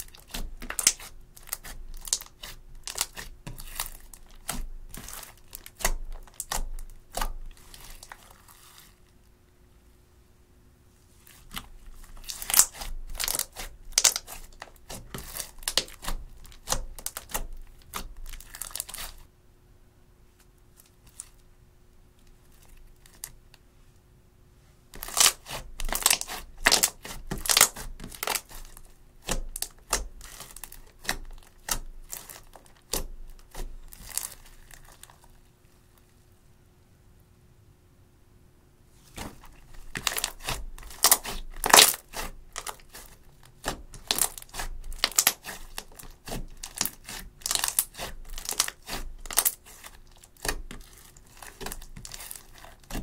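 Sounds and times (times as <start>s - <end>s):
slime crackling and popping: 0.0s - 9.1s, 11.4s - 19.2s, 25.0s - 35.4s, 39.3s - 53.0s.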